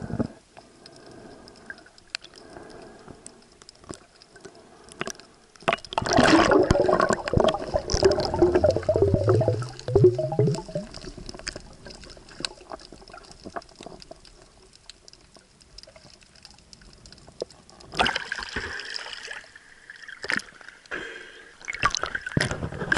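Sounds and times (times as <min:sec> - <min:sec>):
faint clicks and crackles: 0:00.0 - 0:18.8, 0:21.6 - 0:22.9
splashing: 0:05.7 - 0:13.8.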